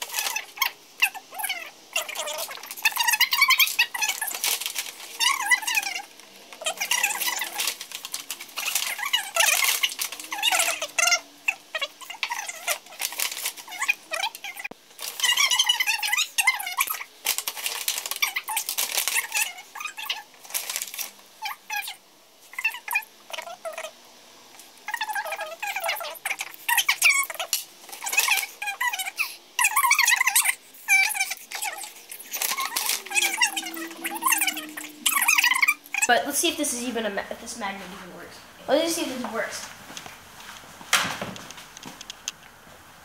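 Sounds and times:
plastic wrap crinkling: 0:00.0 - 0:23.9, 0:24.6 - 0:36.1
paper bag rustling: 0:02.0 - 0:11.1, 0:11.7 - 0:14.3, 0:15.0 - 0:21.2, 0:31.2 - 0:36.1.

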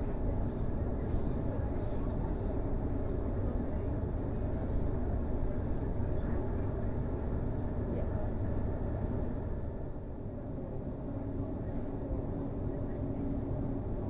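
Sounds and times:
electric train rumbling on rails: 0:00.0 - 0:14.0.

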